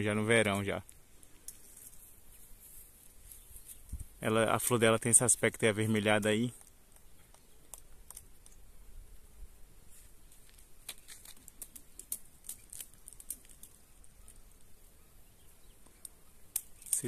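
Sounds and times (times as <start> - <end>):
faint light clicks and crackles: 6.2 - 8.6, 10.3 - 14.7.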